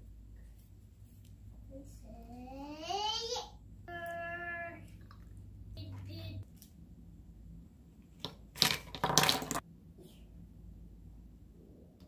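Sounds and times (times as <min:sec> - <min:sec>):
plastic toys clattering: 0:08.2 - 0:09.6.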